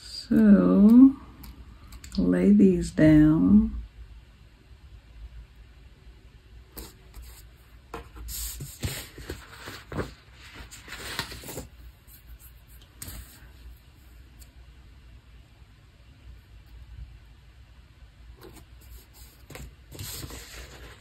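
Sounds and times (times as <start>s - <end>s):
paper and stickers rustling: 6.8s - 13.7s, 18.4s - 21.0s.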